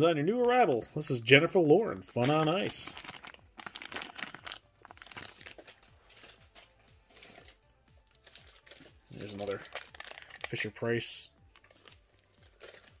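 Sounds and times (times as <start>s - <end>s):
plastic bags crinkling: 2.1s - 10.8s, 11.4s - 13.0s.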